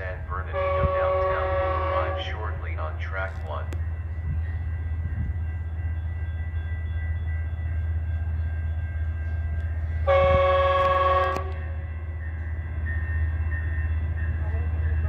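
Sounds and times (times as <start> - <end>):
train air horn blast: 0.5 - 2.4, 10.0 - 11.8.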